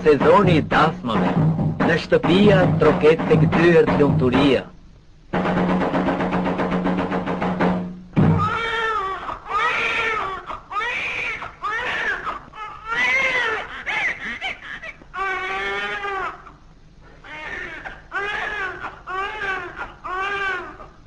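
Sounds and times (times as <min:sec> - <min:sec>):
infant crying: 0:08.3 - 0:16.6, 0:17.2 - 0:21.0.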